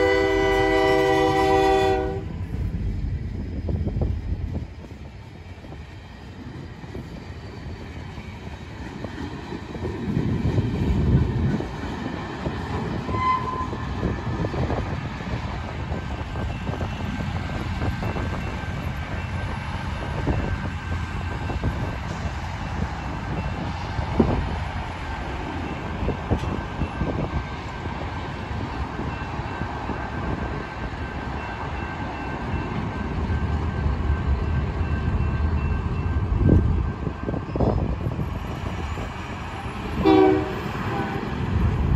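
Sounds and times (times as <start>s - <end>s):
freight train rumbling: 0.0s - 41.9s
train wheels clacking on rails: 2.4s - 41.9s
crossing bell ringing: 31.3s - 37.9s.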